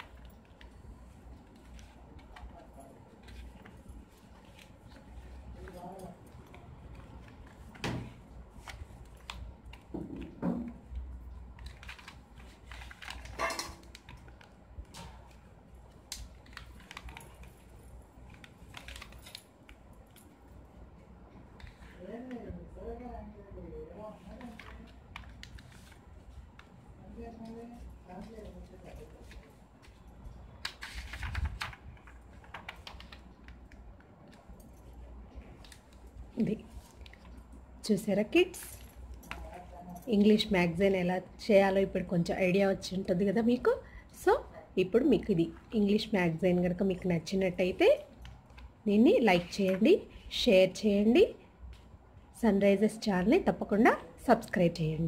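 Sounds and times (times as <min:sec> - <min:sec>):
paper pages rustling and flapping: 0:00.0 - 0:20.1, 0:24.1 - 0:37.6
light clicks and crackles: 0:00.0 - 0:20.5, 0:24.2 - 0:37.6.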